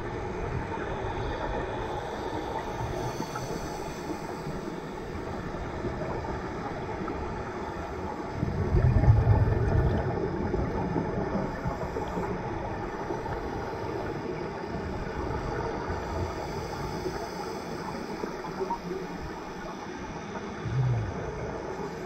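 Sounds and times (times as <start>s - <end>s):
underwater noise: 0.0s - 22.0s
regulator exhaust bubbles: 20.6s - 21.7s.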